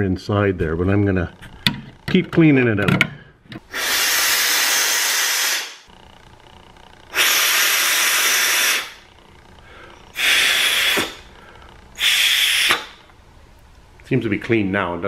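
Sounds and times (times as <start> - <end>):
man blowing air through a hose: 3.7 - 5.9, 7.1 - 9.0, 9.7 - 11.4, 12.0 - 13.0.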